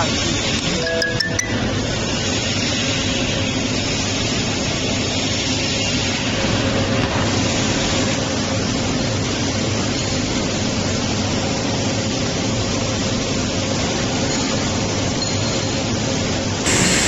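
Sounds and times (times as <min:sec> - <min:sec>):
faint machinery hum: 0:00.0 - 0:17.0.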